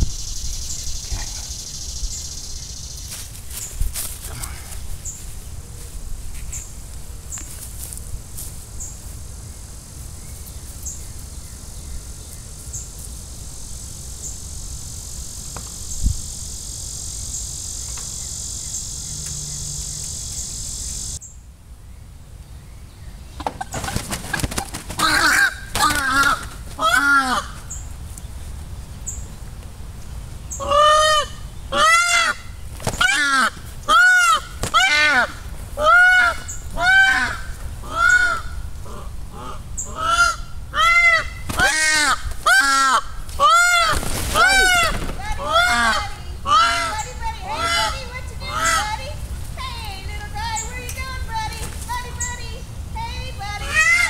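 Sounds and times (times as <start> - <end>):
steady high hiss: 0.0 - 54.0
peafowl honking calls: 23.4 - 27.8, 30.5 - 52.5, 53.4 - 54.0.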